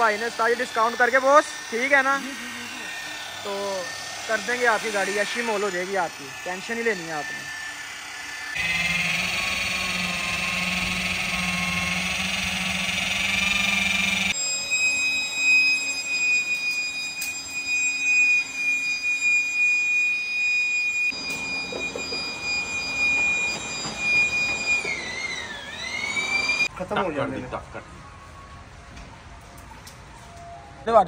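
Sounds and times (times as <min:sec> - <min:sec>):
electric motors whining: 0:00.0 - 0:26.8
low hum: 0:07.2 - 0:14.5.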